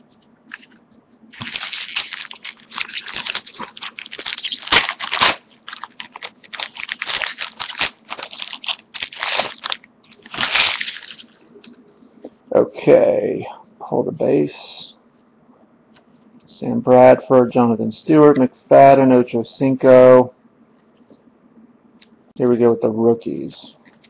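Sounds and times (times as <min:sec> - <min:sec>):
foil wrapper crinkling: 0:00.5 - 0:11.8.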